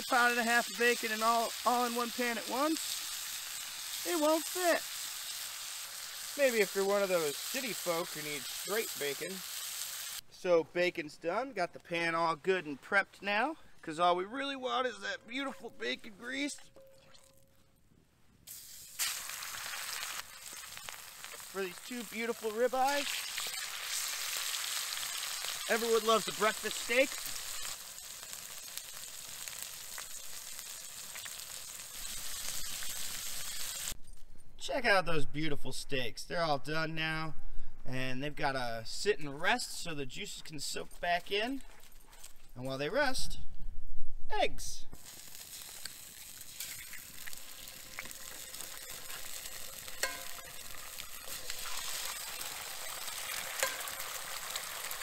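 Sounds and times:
steaks sizzling in a skillet: 0.0s - 10.2s, 18.5s - 34.0s, 45.0s - 55.0s.

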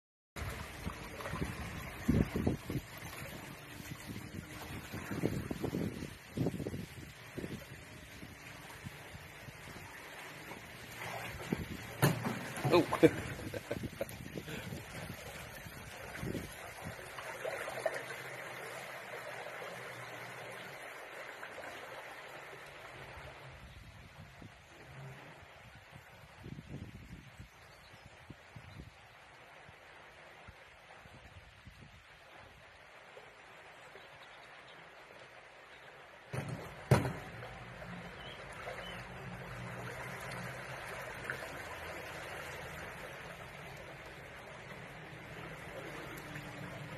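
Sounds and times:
shallow stream flowing: 0.4s - 46.9s
water rushing around a boat: 0.4s - 46.9s
sharp knocks near microphone: 12.0s - 12.5s, 36.3s - 37.4s.

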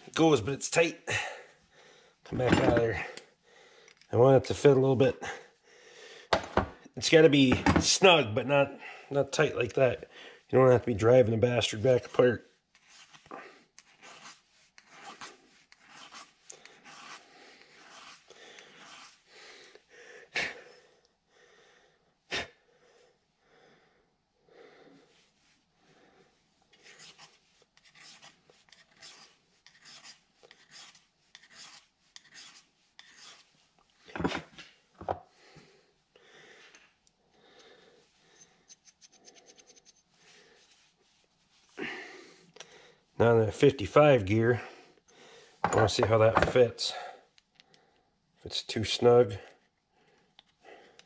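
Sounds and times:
file scraping metal: 14.0s - 17.2s, 26.8s - 33.5s.

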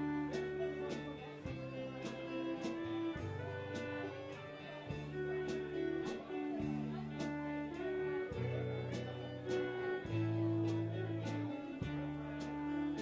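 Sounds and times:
acoustic guitar: 0.0s - 13.0s
fiddle: 0.0s - 13.0s
upright bass: 0.0s - 13.0s.

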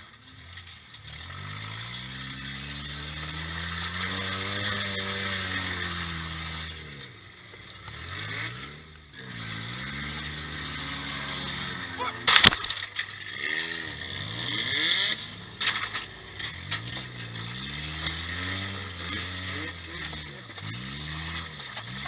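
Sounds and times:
car engine revving: 0.3s - 22.0s
car collision crash: 12.2s - 13.0s.

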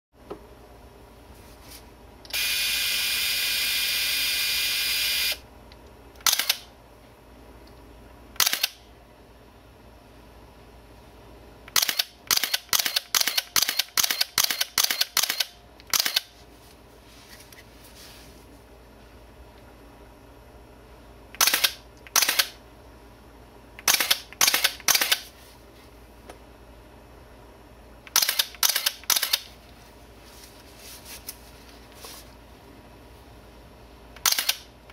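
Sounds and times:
camera motor whirring: 2.3s - 5.4s
camera shutter clacks: 6.2s - 6.7s, 8.4s - 8.8s, 11.7s - 16.3s, 21.4s - 22.6s, 23.8s - 25.3s, 28.1s - 29.5s, 34.2s - 34.7s.

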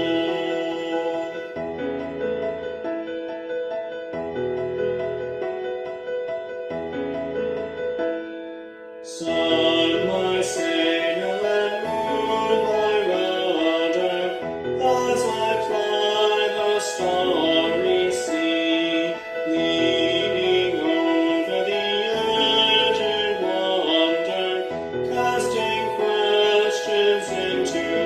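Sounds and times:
person singing a hymn: 0.0s - 1.6s, 9.0s - 28.0s
keyboard accompaniment: 0.0s - 28.0s.

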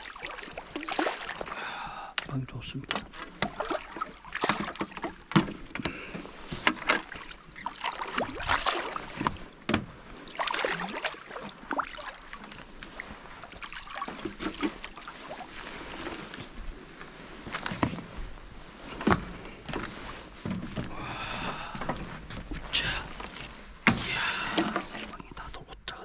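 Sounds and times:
fish thrashing in water: 0.0s - 1.9s, 2.9s - 16.8s.

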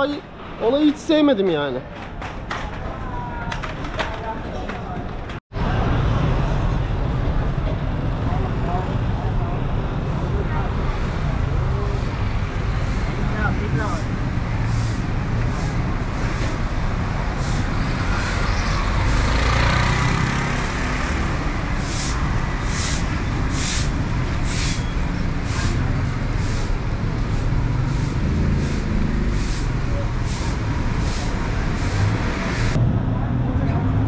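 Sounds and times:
cars and motorbikes passing: 5.5s - 34.0s
hiss: 21.8s - 24.8s, 26.4s - 32.7s.

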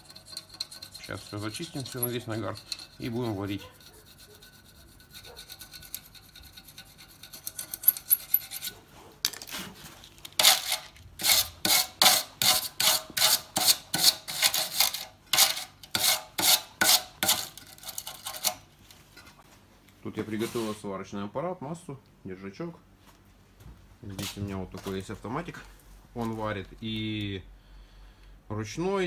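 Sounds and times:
brush scrubbing on metal: 0.0s - 9.0s, 9.6s - 18.6s, 20.3s - 20.9s.

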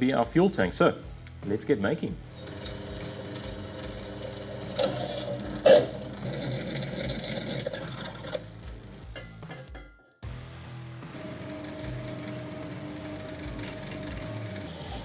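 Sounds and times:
drill bit cutting steel: 2.3s - 6.6s
drill press motor hum: 2.3s - 6.6s, 11.1s - 15.0s.

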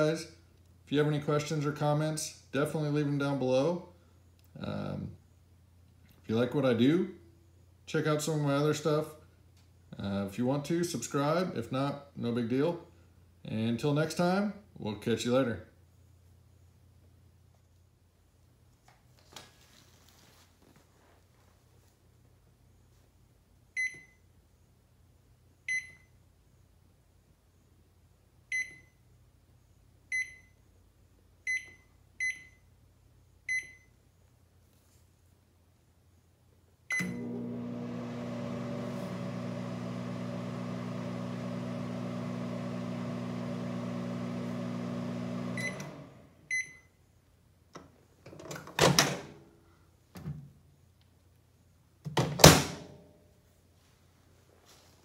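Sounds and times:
microwave keypad beeps: 23.8s - 24.2s, 25.7s - 26.1s, 28.5s - 29.0s, 30.1s - 30.6s, 31.5s - 32.6s, 33.5s - 33.9s, 45.6s - 45.9s, 46.5s - 47.0s
microwave oven humming: 36.9s - 46.6s.

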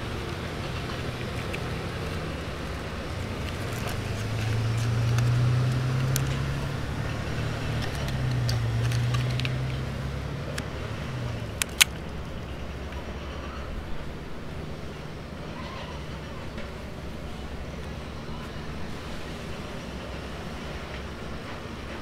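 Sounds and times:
road traffic drone: 0.0s - 22.0s
sharp plastic clicks: 7.7s - 9.8s, 11.4s - 12.2s.

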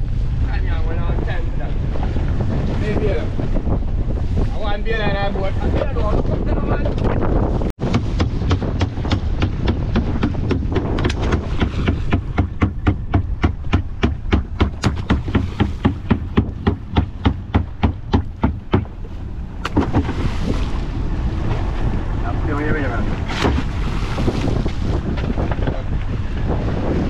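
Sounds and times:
wind noise on microphone: 0.0s - 27.0s
fast hard knocking: 7.8s - 19.0s.

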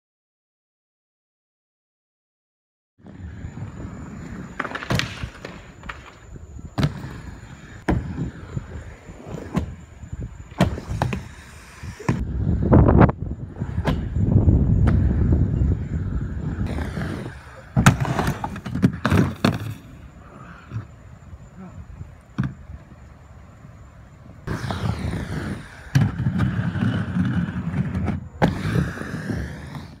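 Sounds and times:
skates knocking and slapping: 3.0s - 9.8s, 10.5s - 12.2s, 16.6s - 21.0s, 22.3s - 22.9s, 24.5s - 30.0s
skate wheels rumbling on concrete: 3.0s - 30.0s
skates clacking on ramp: 4.2s - 8.2s, 16.7s - 20.0s.

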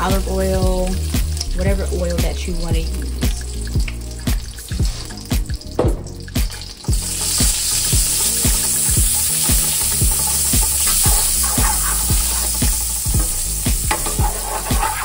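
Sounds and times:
background music with low beat: 0.0s - 15.0s
butter and oil sizzling in a pan: 0.0s - 15.0s
wooden spatula stirring: 13.9s - 15.0s.

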